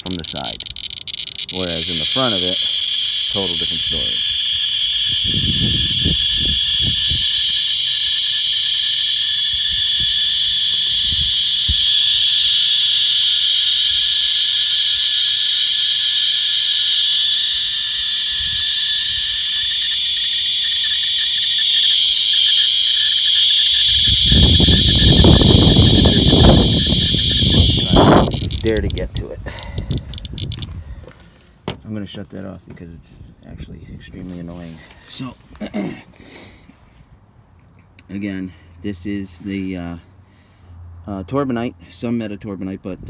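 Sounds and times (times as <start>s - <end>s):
geiger counter crackling: 0.0s - 30.7s.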